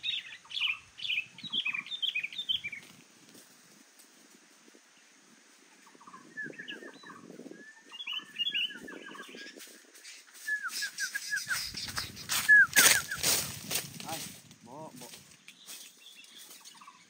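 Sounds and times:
birds chirping: 0:00.0 - 0:03.1, 0:04.8 - 0:17.0
dry leaves rustling: 0:09.4 - 0:17.0.

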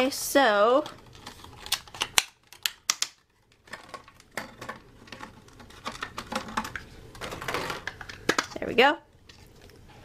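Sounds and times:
plastic packaging clicking and crackling: 0:00.7 - 0:08.6
plastic rustling: 0:00.7 - 0:10.0.

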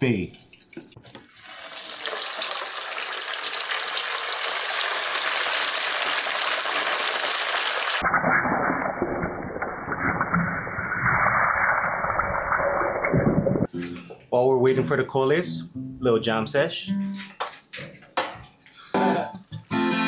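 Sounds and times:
deep-frying sizzle: 0:01.2 - 0:08.1
oil crackling: 0:01.2 - 0:08.1.

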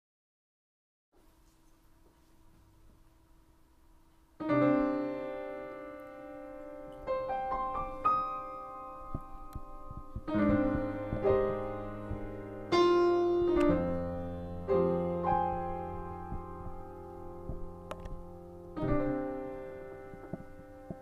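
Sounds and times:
upright piano played slowly: 0:04.2 - 0:21.0.

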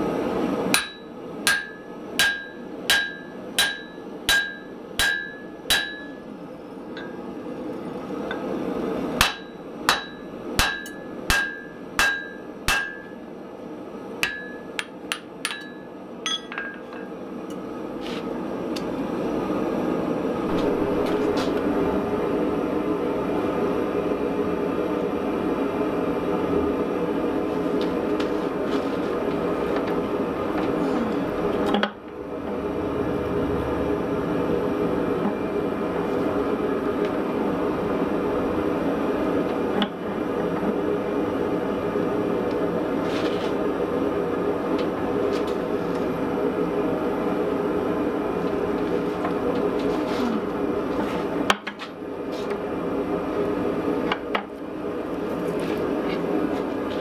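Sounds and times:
forging press humming: 0:00.0 - 0:17.8, 0:18.4 - 0:24.0, 0:27.7 - 0:42.9
hammer ringing on anvil: 0:00.8 - 0:06.2, 0:09.2 - 0:13.2, 0:14.2 - 0:17.1.

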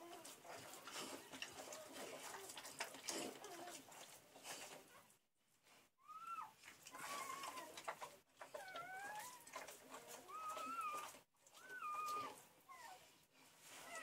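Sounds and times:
puppies crying: 0:06.0 - 0:13.0.

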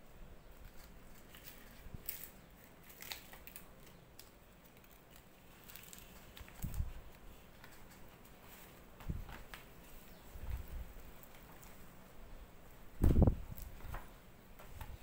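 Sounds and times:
stiff leaves rustling and crackling: 0:00.7 - 0:07.2
dull thump: 0:13.0 - 0:13.4.

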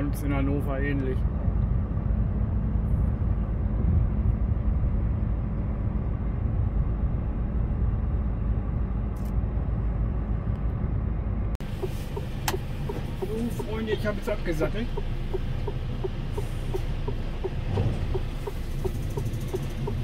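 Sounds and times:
lorry diesel engine rumble: 0:00.0 - 0:20.0
road noise: 0:00.0 - 0:20.0
sharp clicks: 0:14.9 - 0:20.0.

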